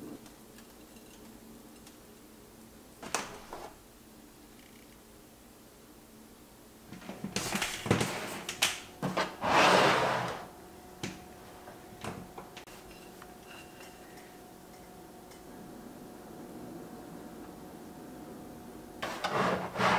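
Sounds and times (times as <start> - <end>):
plate scraping on table: 9.0 - 10.5, 19.0 - 19.9.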